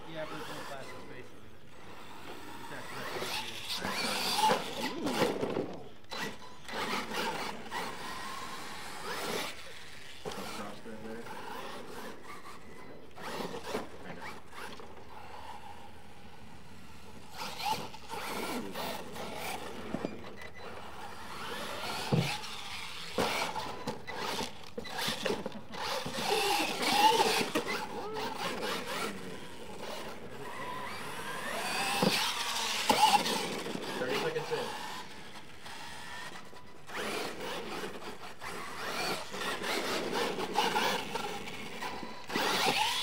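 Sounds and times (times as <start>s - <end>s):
toy truck motor whine: 0.0s - 43.0s
tyres scrabbling on loose dirt: 17.4s - 43.0s.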